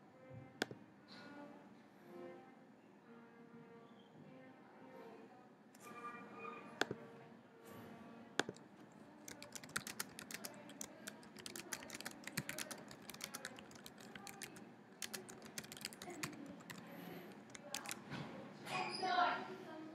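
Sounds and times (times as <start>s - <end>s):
typing on computer keyboard: 8.4s - 8.6s, 9.2s - 18.1s.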